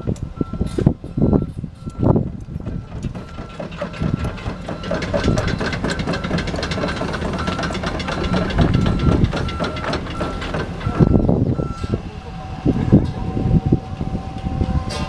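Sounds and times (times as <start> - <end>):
excavator diesel engine running: 0.0 - 15.0
machine clanking and rattling: 0.5 - 12.1.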